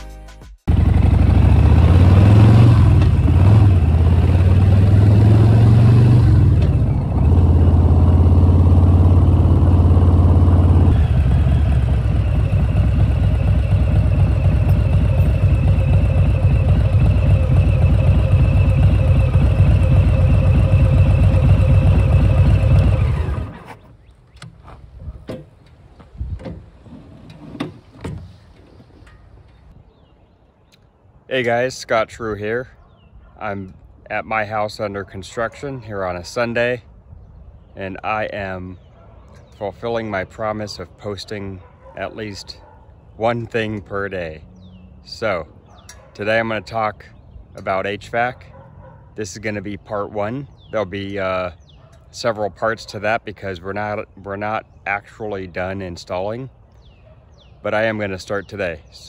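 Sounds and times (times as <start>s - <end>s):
motorcycle engine running: 0.7s - 23.9s.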